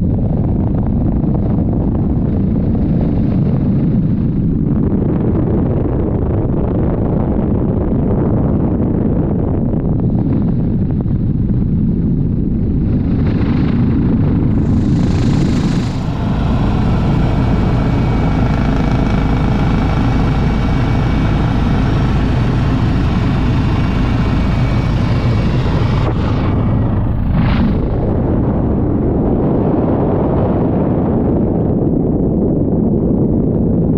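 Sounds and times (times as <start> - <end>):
helicopter rotor and engine rumble: 0.0 - 30.6
wind buffeting microphone: 0.0 - 33.9
faint high whine: 13.3 - 29.0.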